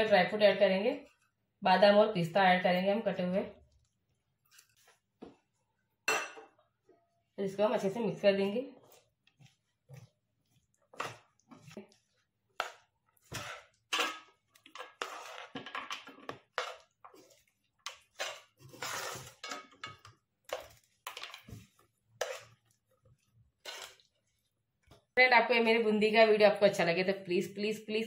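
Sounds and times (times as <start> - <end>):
spoon scraping metal pan: 12.6 - 15.6, 16.3 - 21.6, 22.2 - 22.6, 23.6 - 24.1.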